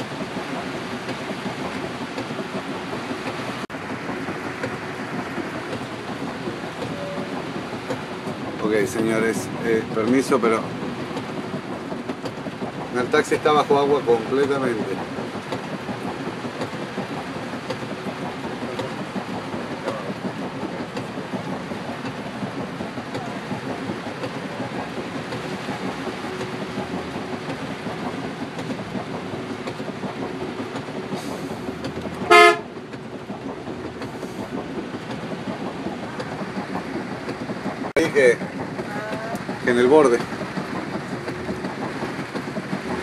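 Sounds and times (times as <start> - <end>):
cars driving through flood water: 0.0 - 43.0
car horn honk: 32.3 - 32.6.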